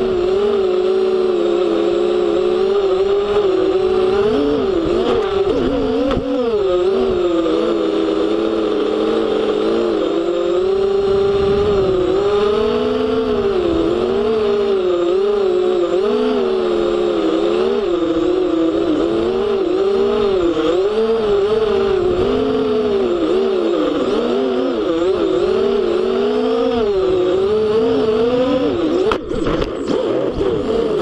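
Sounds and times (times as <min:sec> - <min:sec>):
quadcopter motors whining: 0:00.0 - 0:31.0
drone crashing into grass: 0:29.0 - 0:30.4.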